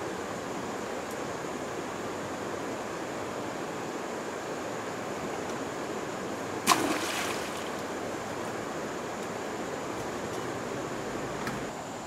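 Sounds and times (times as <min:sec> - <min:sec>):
hose splashing into stream: 0:06.6 - 0:08.2.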